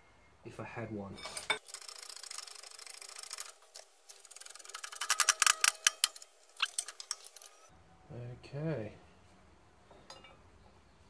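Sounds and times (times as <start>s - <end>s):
metallic clicking and rattling: 1.3s - 7.7s.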